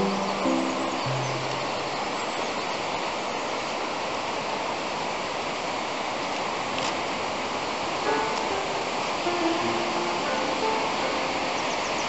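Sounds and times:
guitar music: 0.0 - 1.9, 8.1 - 11.6
mountain stream rushing: 0.0 - 12.0.

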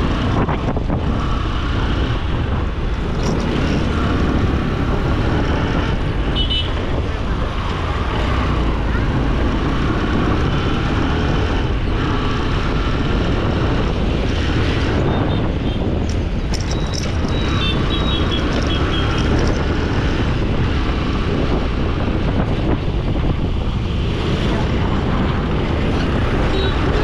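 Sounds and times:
road traffic: 0.0 - 27.0
wind rumbling on microphone: 0.0 - 27.0
high beeps: 16.6 - 18.2.

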